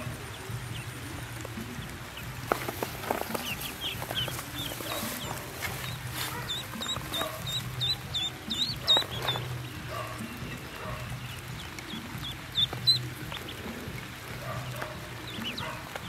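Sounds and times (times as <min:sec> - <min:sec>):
ducklings peeping: 0:00.0 - 0:16.0
knocks and rustles on plastic basket: 0:01.5 - 0:07.8, 0:08.4 - 0:11.1.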